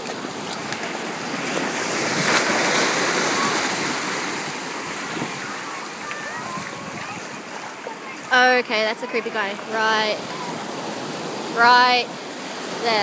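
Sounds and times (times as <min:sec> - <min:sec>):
shallow surf rushing: 0:00.0 - 0:13.0
wind on microphone: 0:01.3 - 0:08.2.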